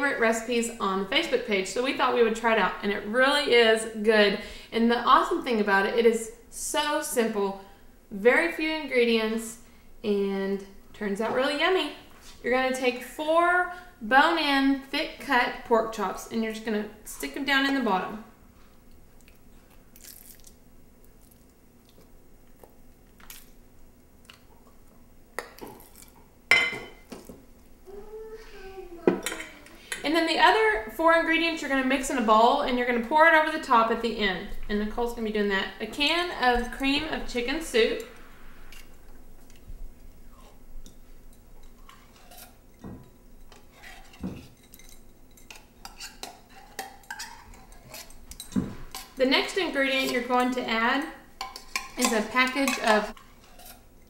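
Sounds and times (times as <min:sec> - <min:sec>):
spoon scraping tin can: 0:51.4 - 0:53.9.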